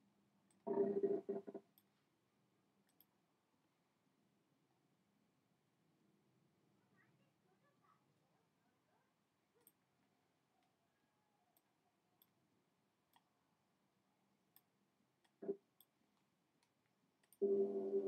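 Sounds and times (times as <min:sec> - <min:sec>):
faint computer mouse clicks: 0:14.5 - 0:17.4.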